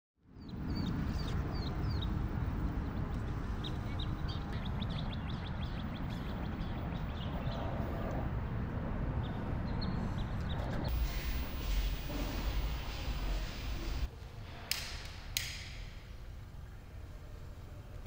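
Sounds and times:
small birds chirping: 0.3s - 7.9s
low outdoor rumble: 0.6s - 14.6s.

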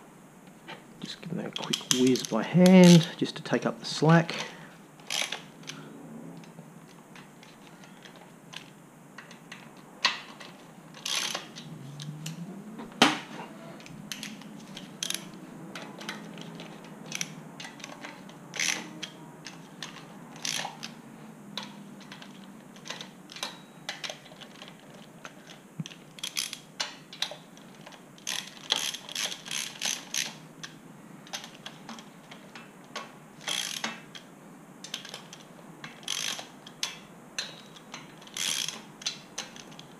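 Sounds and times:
socket ratchet clicking: 11.0s - 12.4s, 13.8s - 21.0s, 25.9s - 32.1s, 33.4s - 34.3s, 34.9s - 39.9s.

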